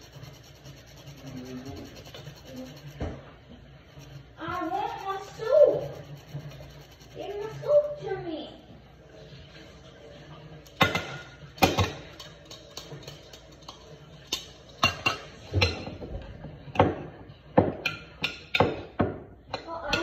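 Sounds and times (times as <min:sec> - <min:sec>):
utensils knocking against glass bowl: 0:10.8 - 0:16.1, 0:17.6 - 0:20.0.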